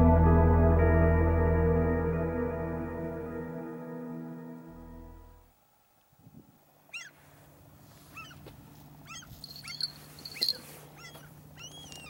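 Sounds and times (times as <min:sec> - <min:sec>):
bird calling: 0:06.9 - 0:07.2, 0:08.0 - 0:12.0.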